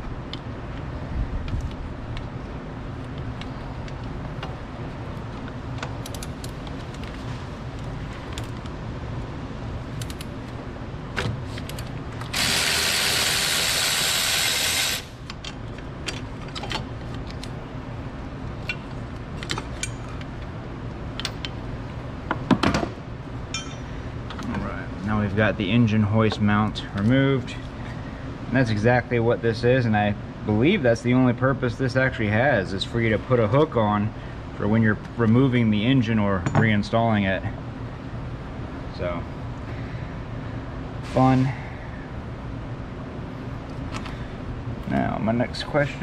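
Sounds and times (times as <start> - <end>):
steady low hum: 0.0 - 46.0
loud burst of noise: 12.3 - 15.2.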